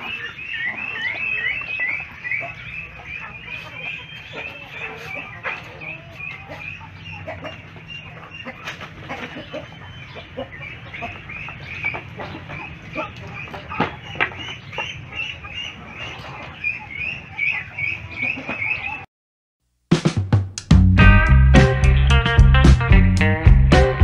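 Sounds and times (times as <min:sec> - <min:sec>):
chickens clucking: 0:00.0 - 0:19.1.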